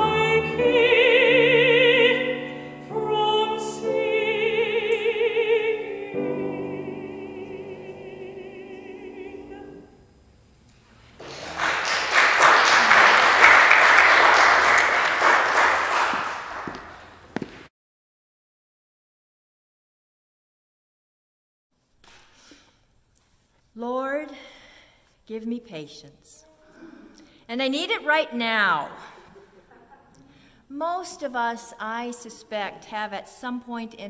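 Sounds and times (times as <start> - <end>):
woman singing operatically: 0.0 - 9.9.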